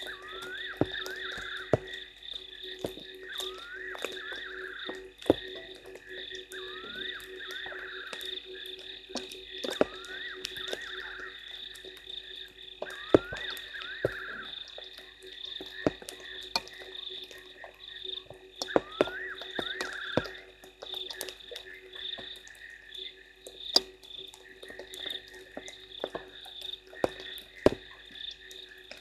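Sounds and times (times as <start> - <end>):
frog rising call: 0.0 - 2.1, 2.8 - 22.7
frogs trilling: 0.0 - 29.0
raindrops tapping: 0.0 - 29.0.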